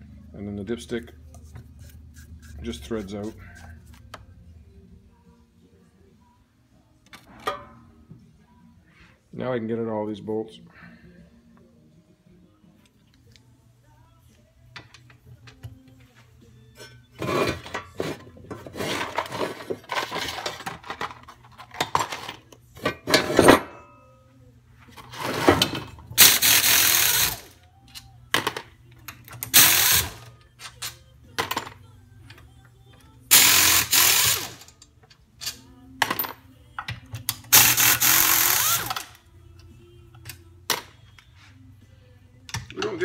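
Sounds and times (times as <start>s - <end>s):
pneumatic wrench bursts: 26.2s - 27.5s, 29.5s - 30.2s, 33.3s - 34.7s, 37.5s - 39.1s.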